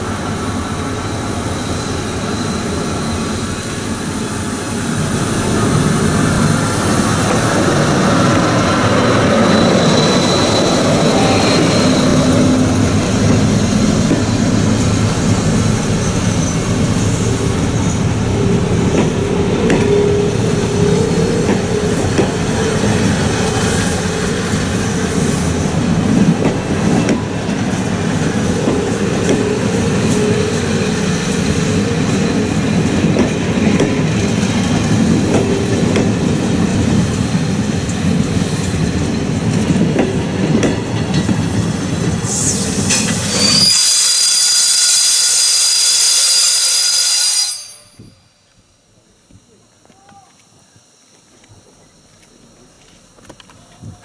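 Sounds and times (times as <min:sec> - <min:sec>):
train wheels rumbling: 0:00.0 - 0:54.0
high-pitched wheel squeal: 0:08.2 - 0:12.8, 0:42.9 - 0:48.4.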